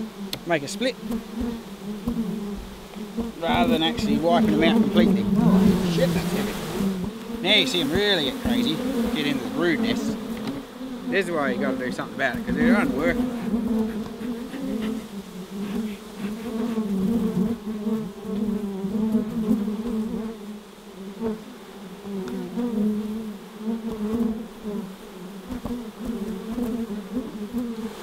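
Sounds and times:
bees buzzing: 0.0s - 28.0s.

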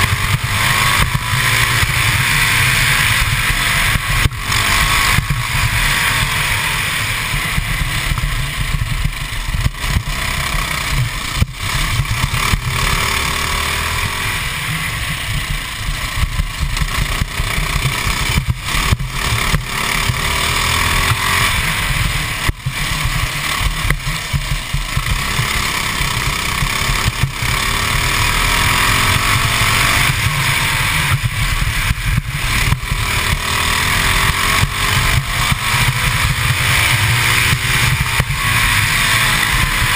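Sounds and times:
kart engine running hard: 0.0s - 39.9s
wind rumbling on microphone: 13.7s - 39.9s.

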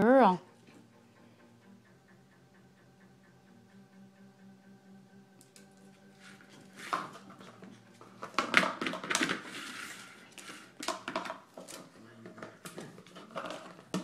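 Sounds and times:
dog claws clicking on floor: 5.4s - 14.0s
dogs scrabbling and snuffling: 6.2s - 14.0s.

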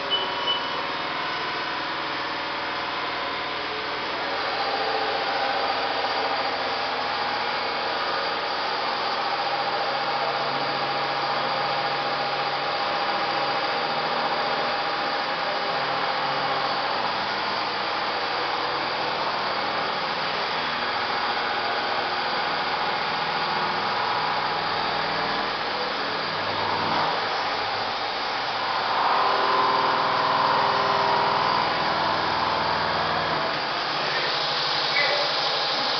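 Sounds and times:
thin steady whine: 0.0s - 35.9s
machining centre mechanical hiss: 17.0s - 35.9s.

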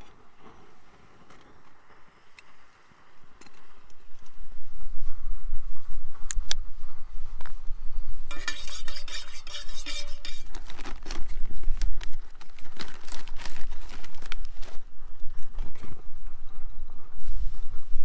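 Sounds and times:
metal utensil scraping pot: 8.3s - 11.5s.

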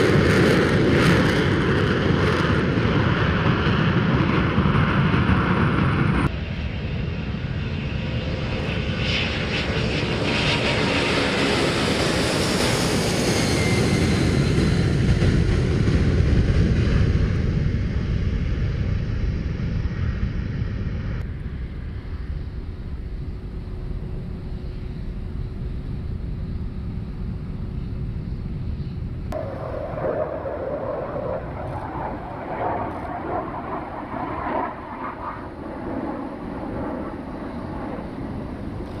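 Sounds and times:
jet engines rumbling: 0.0s - 39.0s
hissing jet noise overhead: 21.2s - 39.0s.

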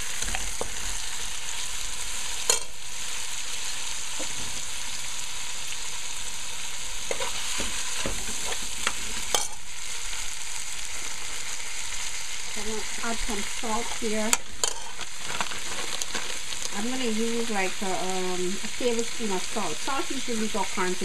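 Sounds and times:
paste sizzling in oil: 0.0s - 21.0s
metal spoon scraping pot: 13.8s - 16.4s.

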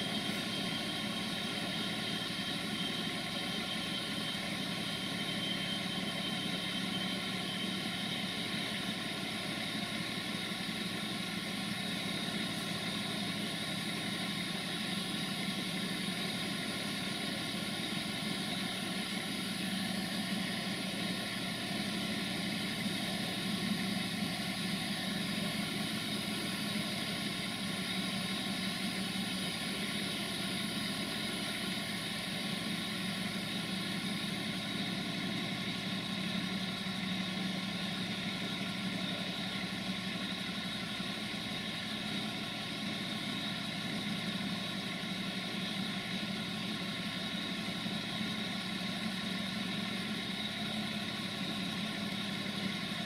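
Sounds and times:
train engine idling: 0.0s - 53.0s.

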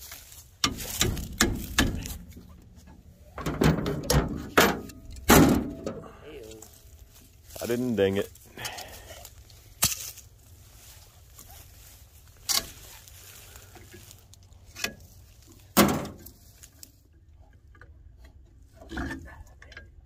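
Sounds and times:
hand tools knocking and clanking: 0.6s - 6.1s.

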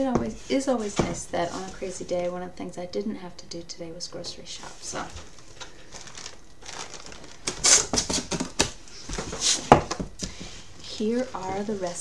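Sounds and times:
paper and packaging rustling: 4.6s - 9.9s, 10.8s - 12.0s
cardboard flaps scraping: 5.0s - 12.0s.

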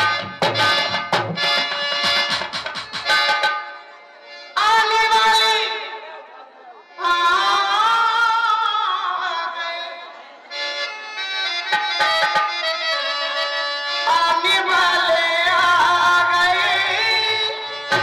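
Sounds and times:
tabla strokes: 0.0s - 3.9s, 17.7s - 18.0s
harmonium: 0.0s - 18.0s
person singing: 6.8s - 10.2s, 14.0s - 18.0s.

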